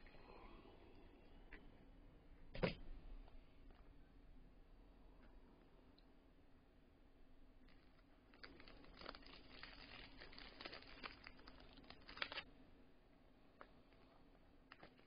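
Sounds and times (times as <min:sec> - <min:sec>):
cardboard packaging crinkling and tearing: 0:07.7 - 0:12.5, 0:14.7 - 0:15.0.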